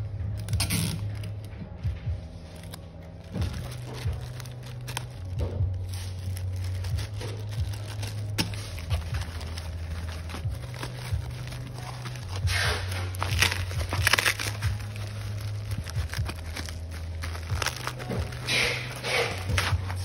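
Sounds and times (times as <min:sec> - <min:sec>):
plastic mailer crinkling: 0:02.4 - 0:20.0.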